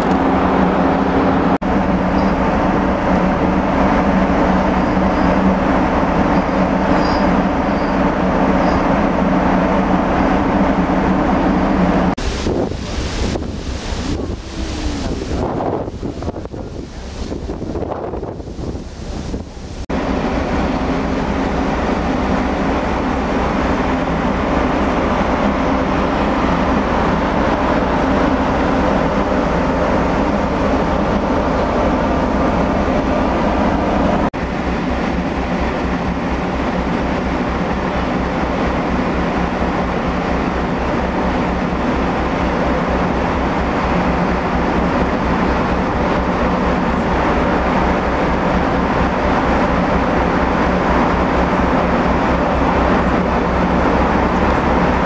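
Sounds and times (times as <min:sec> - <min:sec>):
ship engines droning: 0:00.0 - 0:55.0.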